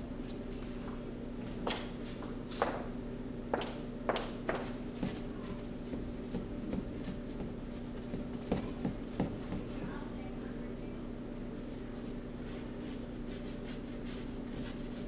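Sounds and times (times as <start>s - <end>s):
low electrical hum: 0.0s - 15.0s
paintbrush scraping and tapping: 4.5s - 9.9s.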